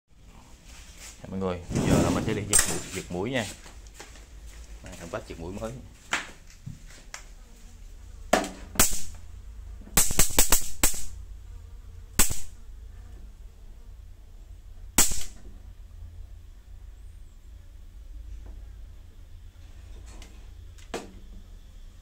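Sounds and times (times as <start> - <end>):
electric mosquito racket snapping: 8.3 - 9.2, 9.9 - 11.2, 12.1 - 12.6, 15.0 - 15.4.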